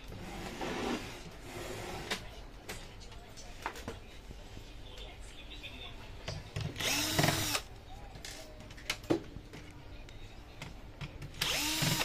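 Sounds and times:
electric screwdriver whirring: 0:06.8 - 0:07.6, 0:11.4 - 0:12.0.

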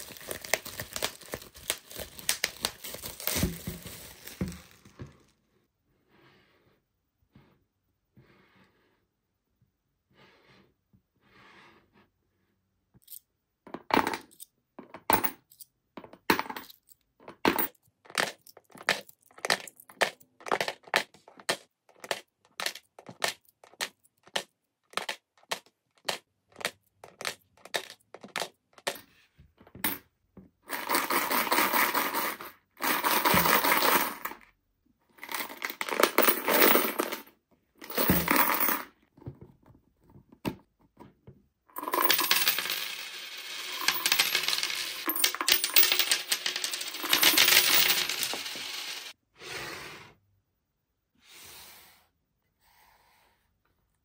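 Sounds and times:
coins rattling in shaken bank: 0:00.0 - 0:04.4, 0:30.7 - 0:34.4, 0:35.2 - 0:38.9, 0:41.8 - 0:49.2
coins clinking into piggy bank: 0:30.7 - 0:34.4, 0:35.2 - 0:38.9, 0:41.8 - 0:49.2.

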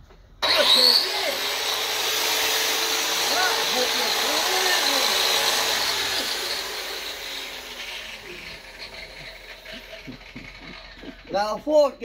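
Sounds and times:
angle grinder winding down: 0:00.4 - 0:11.9.

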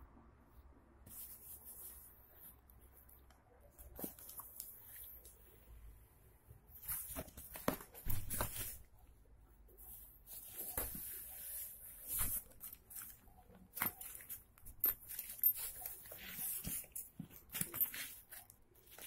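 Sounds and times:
nylon fabric rustling: 0:09.8 - 0:19.0.

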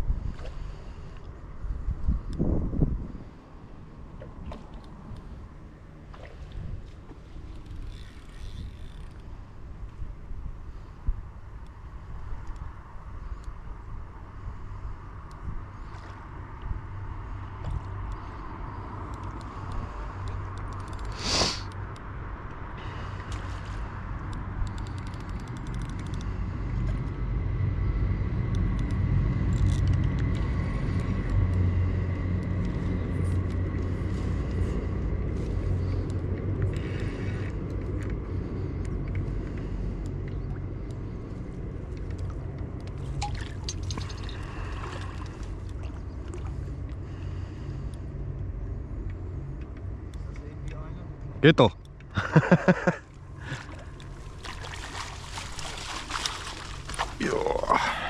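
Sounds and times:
fishing reel ticking: 0:07.5 - 0:09.5, 0:19.1 - 0:21.2, 0:24.3 - 0:26.4.

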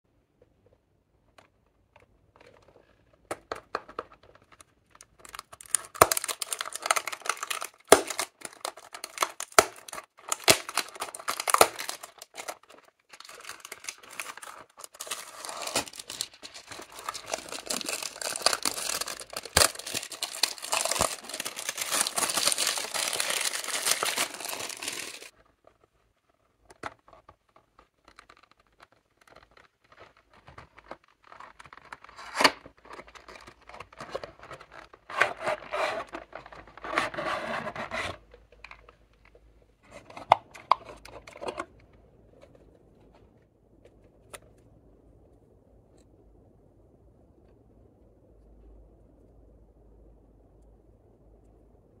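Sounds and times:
plastic wrap crinkling: 0:03.7 - 0:25.8, 0:26.7 - 0:37.2.

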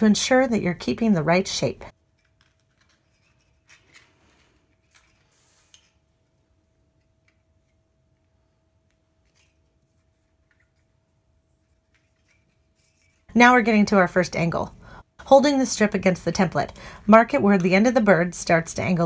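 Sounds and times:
metal strip and paper crinkling: 0:01.9 - 0:07.8, 0:09.2 - 0:13.3.

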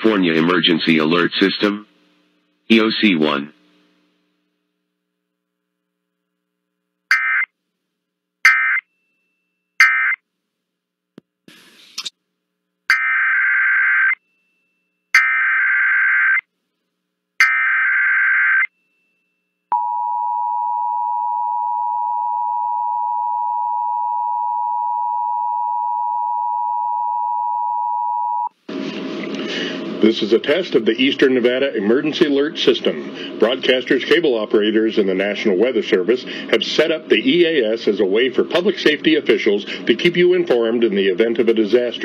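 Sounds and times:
screeching digital data bursts: 0:07.1 - 0:07.5, 0:08.5 - 0:08.8, 0:09.8 - 0:10.2, 0:12.9 - 0:14.2, 0:15.2 - 0:16.4, 0:17.4 - 0:18.7
two-tone attention signal: 0:08.5 - 0:08.8, 0:09.8 - 0:10.2.

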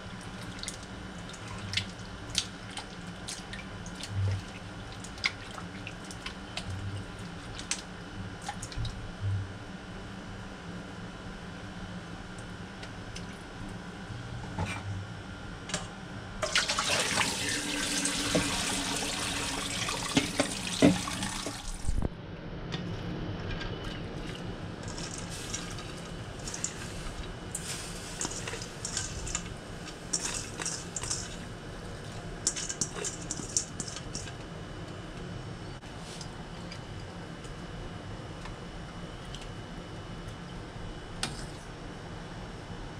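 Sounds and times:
tap running into a steel sink: 0:20.1 - 0:21.1
clicks and rustling of greens: 0:23.5 - 0:34.5.

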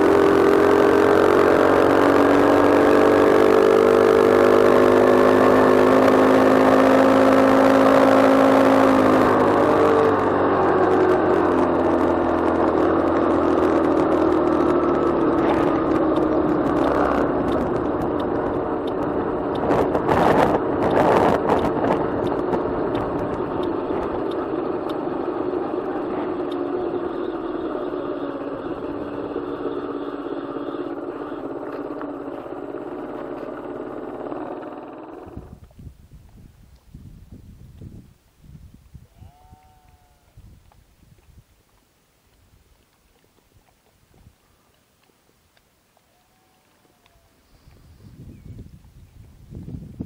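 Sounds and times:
humming tone falling in pitch: 0:00.0 - 0:35.6
road and wind noise: 0:00.0 - 0:50.0.

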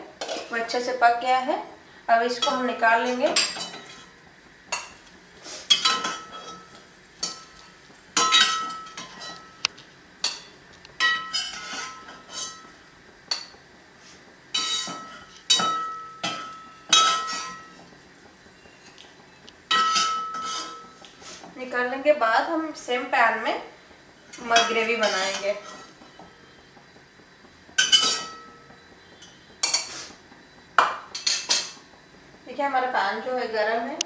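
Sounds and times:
metal spatula clinking and scraping: 0:10.2 - 0:12.6, 0:19.7 - 0:20.8, 0:24.6 - 0:25.9, 0:27.8 - 0:28.4.

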